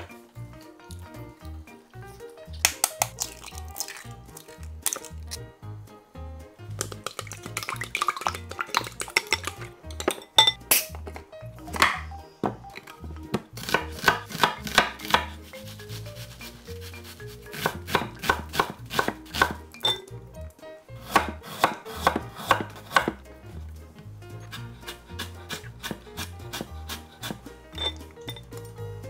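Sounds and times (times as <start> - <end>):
knife chopping on wooden board: 13.3 - 15.4, 17.5 - 19.6, 21.0 - 23.2, 24.5 - 27.5.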